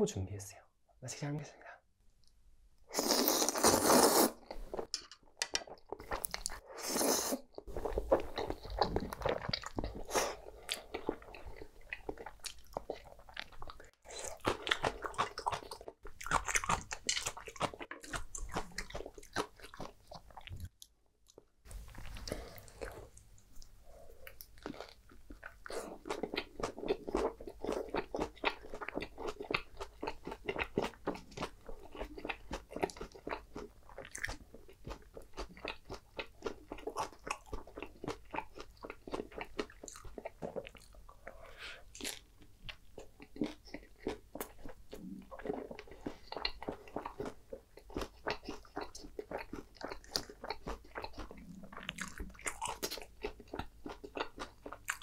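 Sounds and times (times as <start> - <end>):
slurping noodles: 2.9 - 4.5
wet chewing with smacking: 7.6 - 55.0.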